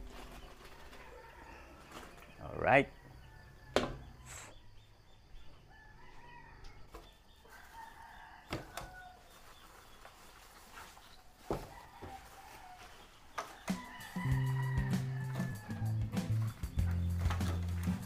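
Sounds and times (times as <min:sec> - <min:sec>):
rooster crowing faintly: 0:11.4 - 0:16.0.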